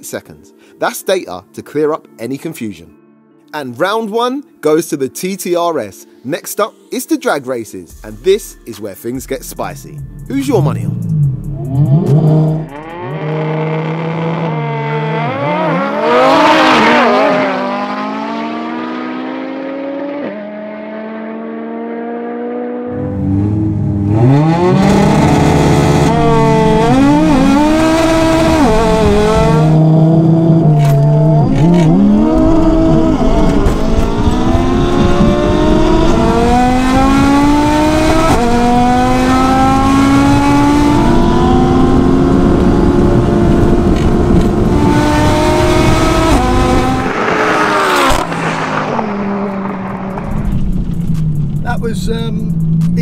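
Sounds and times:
cars accelerating hard: 10.9s - 51.6s.

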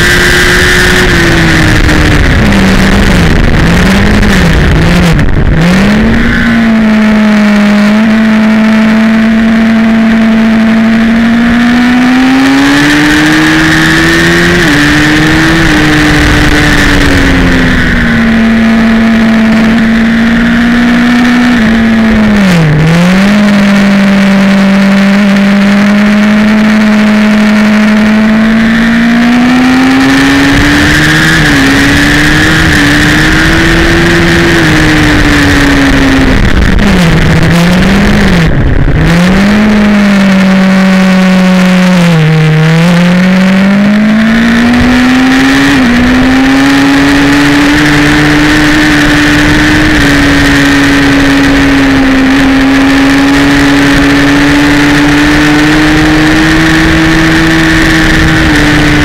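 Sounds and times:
wind rush: 0.0s - 24.2s, 25.3s - 59.0s
high-revving motorcycle engine: 0.0s - 59.0s.

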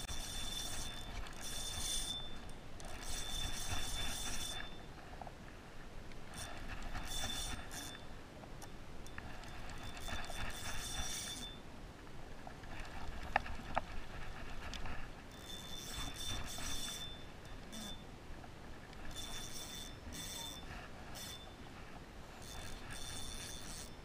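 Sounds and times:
fishing reel gears whirring: 0.0s - 5.0s, 6.3s - 8.2s, 9.0s - 11.6s, 14.2s - 18.0s, 18.9s - 21.6s, 22.3s - 24.0s.

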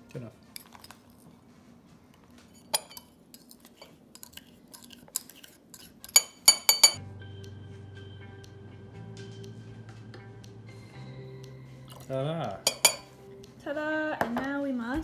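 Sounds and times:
metal spoon clinking against glass: 2.6s - 3.1s, 4.2s - 7.0s, 12.6s - 13.1s
background music: 7.0s - 15.0s.

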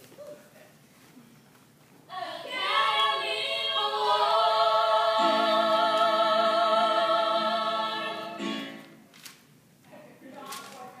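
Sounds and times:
voices singing held note: 2.1s - 8.9s.

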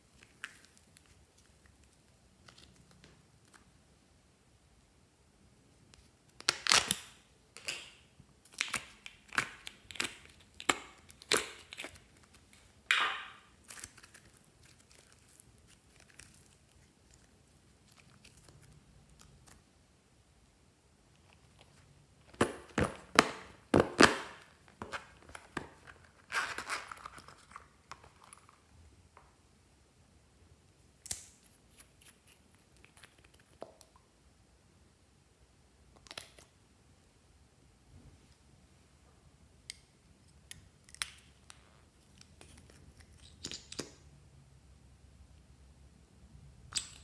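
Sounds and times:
slime crackling and tearing: 13.6s - 19.6s.

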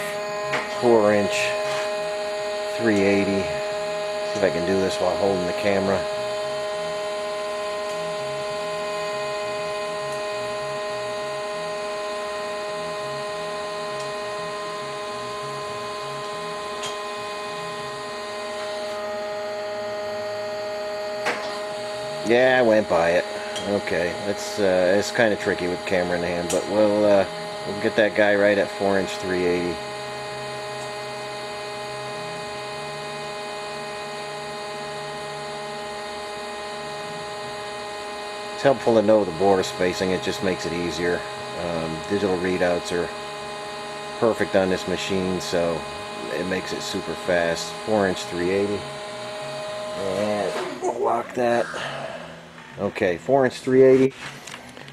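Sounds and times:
machine humming with constant tones: 0.0s - 54.9s.

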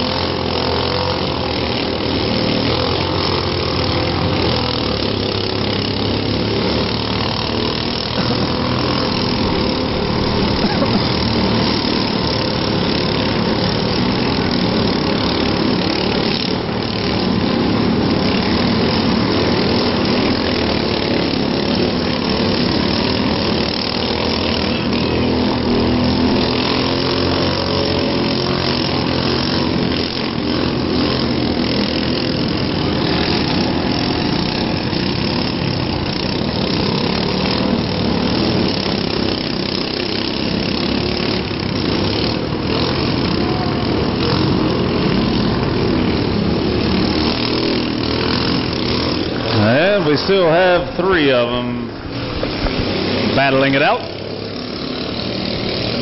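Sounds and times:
car engines running: 0.0s - 56.0s.

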